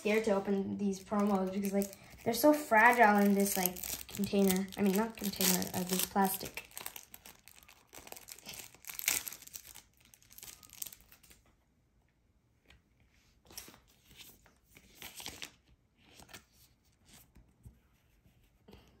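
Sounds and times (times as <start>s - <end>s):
plastic wrapper tearing and crinkling: 0.0s - 11.4s.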